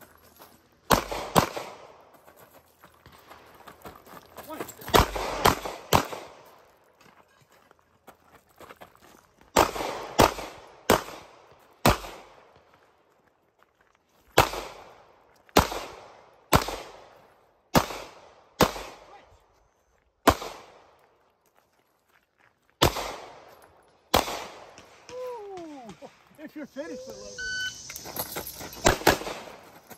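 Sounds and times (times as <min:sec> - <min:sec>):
pistol shots: 0:00.9 - 0:02.0, 0:04.8 - 0:06.5, 0:09.5 - 0:12.4, 0:14.4 - 0:15.0, 0:15.6 - 0:17.1, 0:17.7 - 0:19.1, 0:20.2 - 0:21.0, 0:22.8 - 0:23.5, 0:24.1 - 0:26.2, 0:28.8 - 0:29.6.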